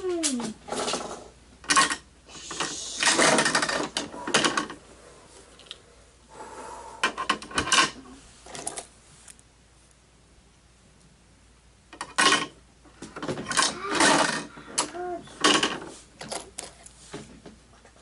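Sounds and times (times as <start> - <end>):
toy cars clattering: 2.6 - 4.8, 13.2 - 16.8.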